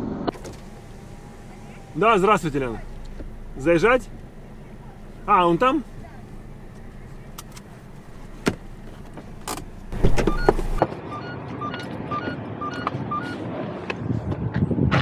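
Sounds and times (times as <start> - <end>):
car door opening with clunk: 0.3 - 10.9
two-note door warning beeping: 9.9 - 12.8.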